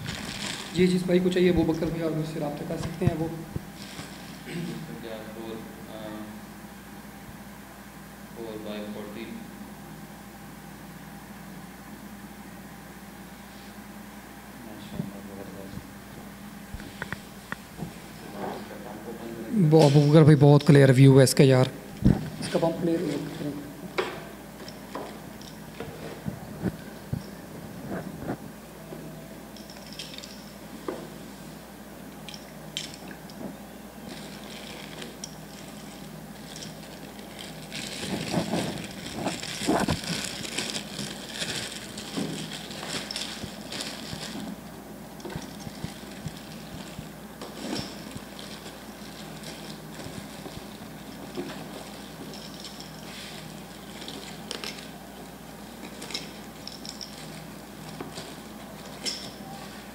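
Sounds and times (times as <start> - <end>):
plastic bag crinkling: 0.0 - 3.0, 34.0 - 55.0
steady low hum: 0.0 - 59.9.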